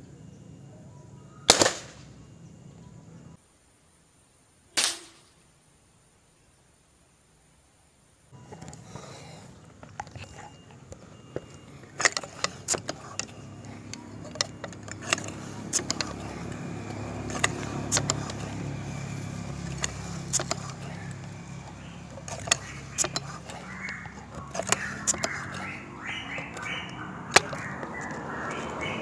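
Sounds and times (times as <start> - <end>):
vehicle passing: 8.4 - 29.0
air rifle clicks and clacks: 9.8 - 28.9.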